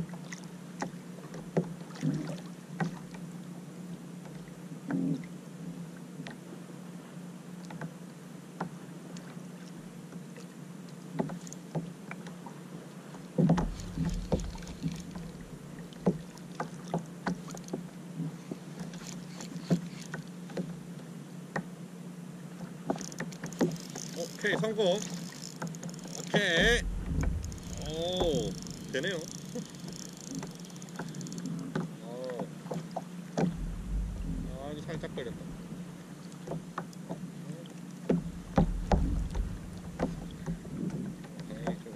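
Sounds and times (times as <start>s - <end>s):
waves lapping against kayak hull: 11.2s - 21.7s, 22.4s - 41.9s
light knocks on hull: 13.4s - 17.4s, 26.3s - 29.0s, 31.7s - 35.7s, 38.1s - 41.8s
loud thump: 13.6s - 14.8s, 26.6s - 29.0s, 33.4s - 35.8s, 38.3s - 40.8s
low hum: 13.6s - 16.0s, 26.6s - 31.5s, 33.4s - 36.4s, 38.2s - 41.2s.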